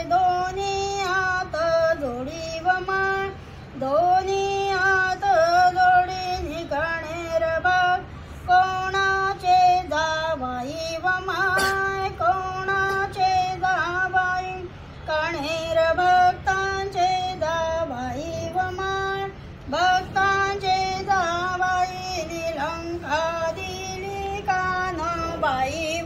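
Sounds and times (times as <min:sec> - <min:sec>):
woman singing devotional song: 0:00.0 - 0:26.0.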